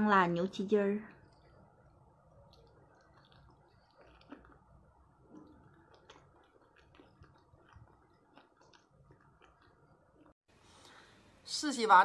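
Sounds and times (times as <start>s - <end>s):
mouth chewing wetly: 1.2s - 10.4s.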